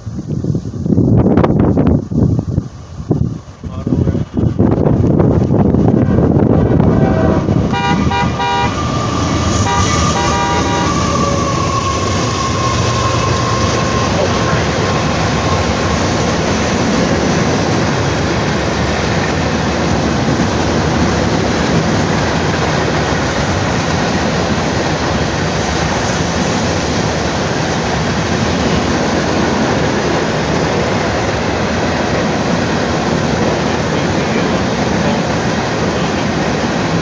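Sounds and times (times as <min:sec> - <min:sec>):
freight train wheels on rail: 0:00.0 - 0:37.0.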